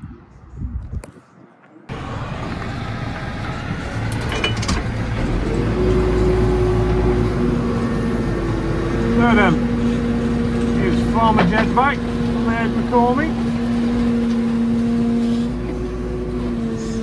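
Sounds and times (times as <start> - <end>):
diesel engine running: 1.9 - 17.0.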